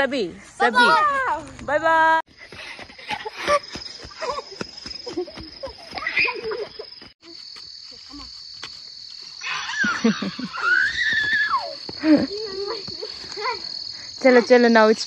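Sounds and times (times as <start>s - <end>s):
insects trilling: 2.3s - 15.0s
children chattering: 12.0s - 15.0s.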